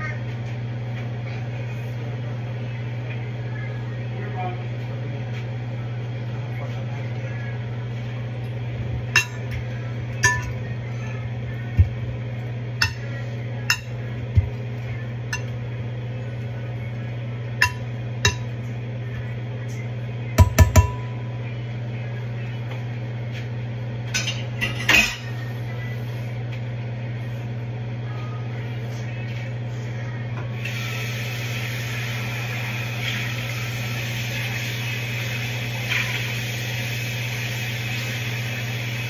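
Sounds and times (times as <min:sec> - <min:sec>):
steady low hum: 0:00.0 - 0:39.0
utensil clinking against glass bowl: 0:09.2 - 0:09.6, 0:13.7 - 0:14.0, 0:17.6 - 0:18.6.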